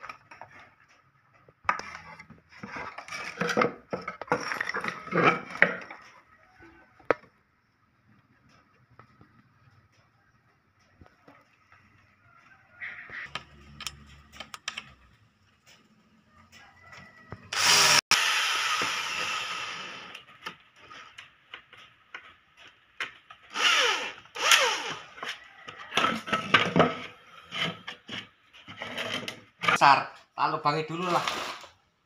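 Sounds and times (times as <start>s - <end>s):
electric drill boring into wood: 17.4s - 20.2s, 23.5s - 25.3s.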